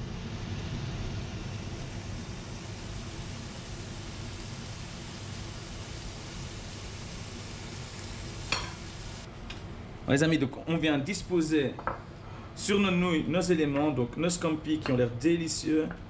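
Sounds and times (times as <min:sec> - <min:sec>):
seafood sizzling in a pan: 0:01.3 - 0:09.3.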